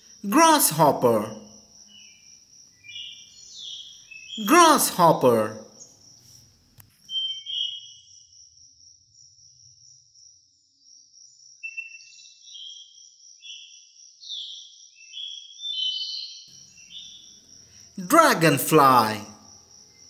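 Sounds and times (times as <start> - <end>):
high-pitched insect trill: 0.0 - 4.4, 7.1 - 15.6, 16.5 - 17.9
whistled bird-like chirps: 7.1 - 8.1, 11.6 - 17.2.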